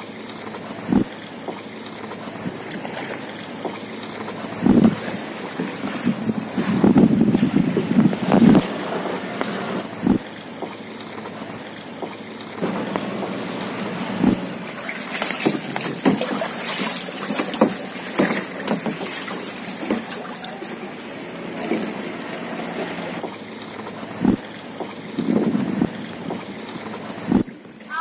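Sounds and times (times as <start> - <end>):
water lapping against kayak: 0.0 - 28.0
knocks on kayak: 17.3 - 20.1.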